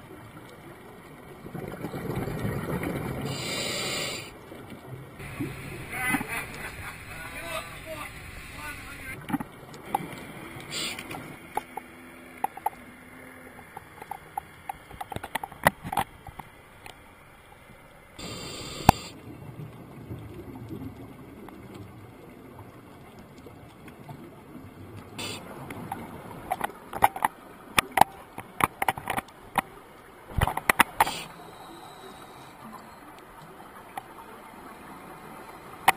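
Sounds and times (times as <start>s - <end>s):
underwater clicks and taps: 9.2s - 12.8s, 13.6s - 17.0s, 25.6s - 29.7s, 30.3s - 31.3s.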